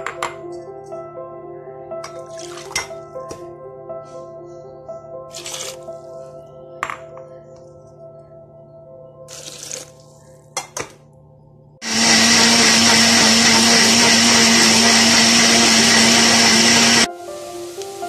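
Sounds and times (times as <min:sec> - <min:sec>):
water pouring: 0:02.1 - 0:02.9, 0:05.3 - 0:05.9, 0:09.3 - 0:10.1
mixer grinder running: 0:11.8 - 0:17.1.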